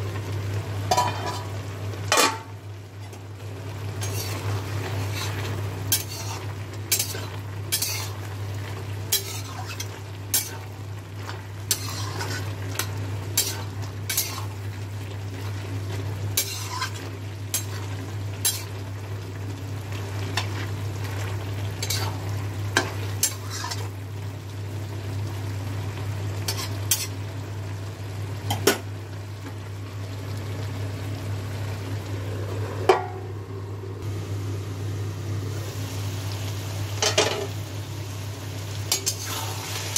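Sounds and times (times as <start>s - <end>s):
steady low hum: 0.0s - 39.9s
spatula scraping steel wok: 4.0s - 8.2s, 9.1s - 10.7s, 11.6s - 14.5s, 16.4s - 18.8s, 21.8s - 22.2s, 23.2s - 23.9s, 38.9s - 39.9s.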